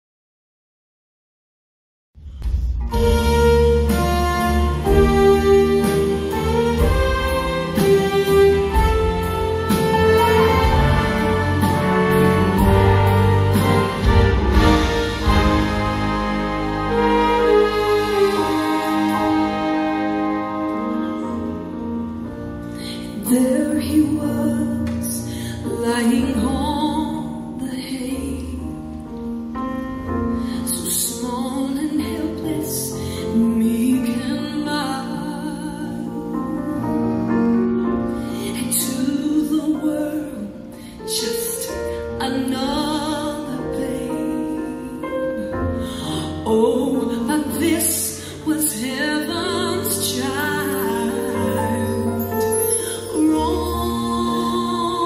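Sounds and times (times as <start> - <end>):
instrumental accompaniment: 2.2 - 32.6, 33.2 - 55.0
woman singing: 22.8 - 28.8, 30.5 - 37.0, 38.4 - 55.0.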